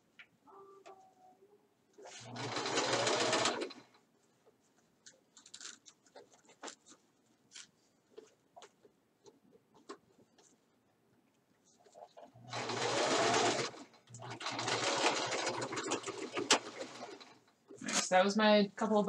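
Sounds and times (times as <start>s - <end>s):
sewing machine running: 2.2s - 3.8s, 12.5s - 17.4s.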